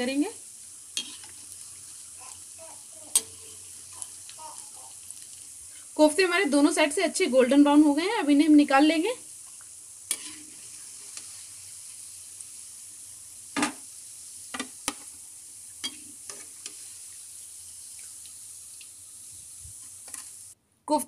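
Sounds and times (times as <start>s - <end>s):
deep-frying sizzle in oil: 0.0s - 20.6s
metal spoon clinking on pan: 3.1s - 3.6s.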